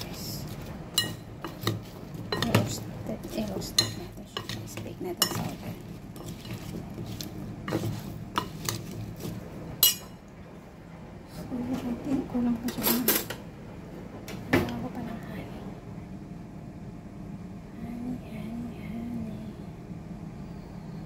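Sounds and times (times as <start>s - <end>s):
spoon scraping in glass bowl: 0.5s - 10.2s
spoon clinking against glass: 9.8s - 10.2s.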